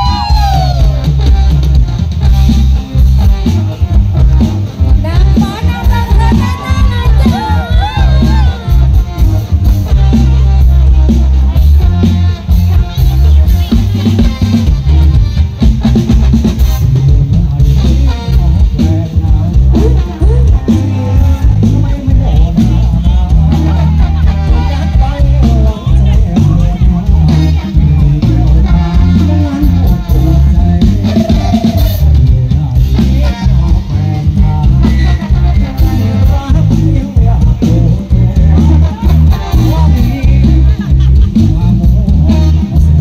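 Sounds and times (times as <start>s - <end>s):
band music over loudspeakers: 0.0s - 43.0s
drum kit with heavy bass: 0.0s - 43.0s
electric guitar: 0.0s - 43.0s.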